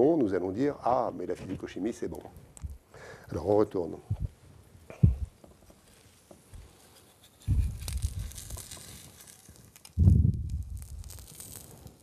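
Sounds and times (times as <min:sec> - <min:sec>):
batter crackling in a pan: 0:05.4 - 0:12.0.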